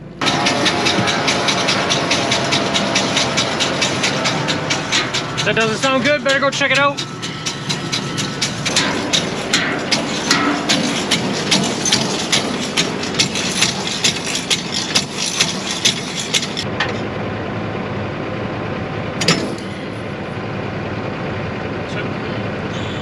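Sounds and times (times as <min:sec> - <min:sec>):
harvester engine hum: 0:00.0 - 0:23.0
sharp metallic clicking: 0:00.2 - 0:16.7.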